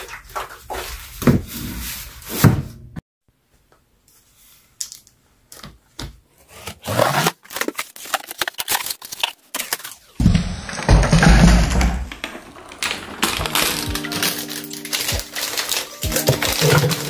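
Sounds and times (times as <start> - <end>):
cardboard flaps rustling: 10.2 - 17.0
box thumping down: 13.2 - 17.0.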